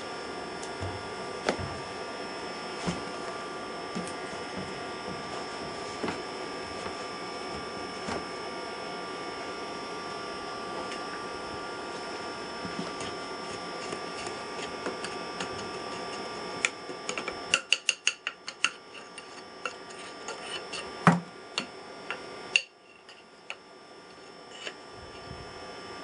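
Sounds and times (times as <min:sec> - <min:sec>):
steady hum: 0:00.0 - 0:26.0
heavy knock with dull thud: 0:00.8 - 0:01.8.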